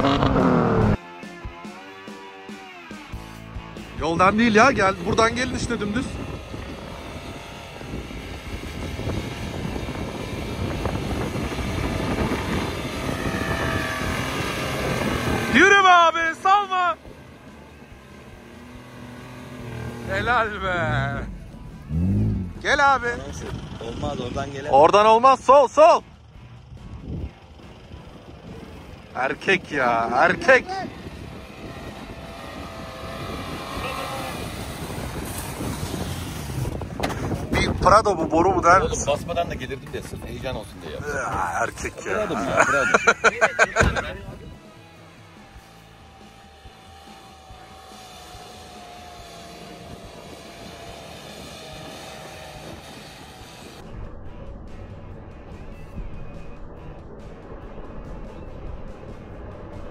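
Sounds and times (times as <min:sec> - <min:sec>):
car engine pulling under throttle: 0:00.0 - 0:01.0, 0:03.1 - 0:59.9
car engine driving through snow: 0:29.0 - 0:37.5, 0:41.5 - 0:54.2.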